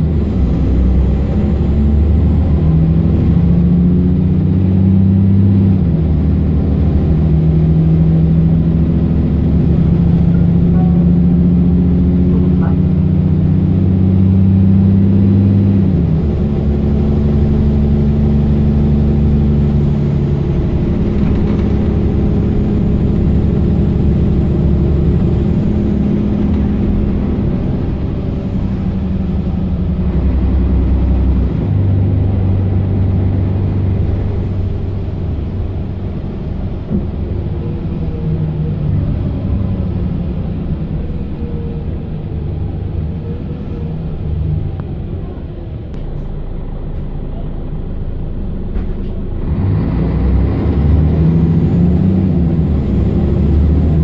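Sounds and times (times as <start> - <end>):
bus diesel engine running: 0.0 - 54.0.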